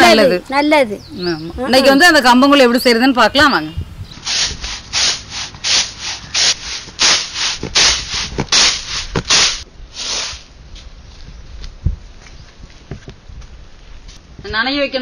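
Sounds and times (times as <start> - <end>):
grain swishing in winnowing tray: 4.2 - 10.5.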